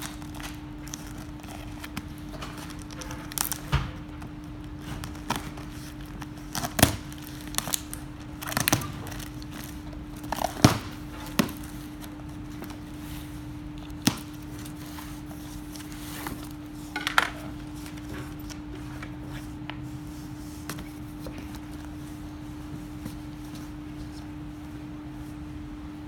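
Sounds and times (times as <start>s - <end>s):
plastic crinkling: 0.0s - 18.8s
steady hum: 0.0s - 26.0s.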